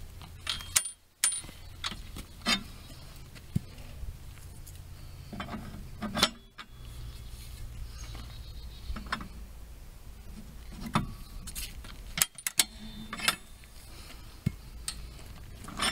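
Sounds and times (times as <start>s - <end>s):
steady low hum: 0.0s - 15.9s
metal frame clicks and clanks: 0.2s - 2.7s, 5.3s - 6.8s, 11.8s - 13.8s, 14.8s - 15.9s.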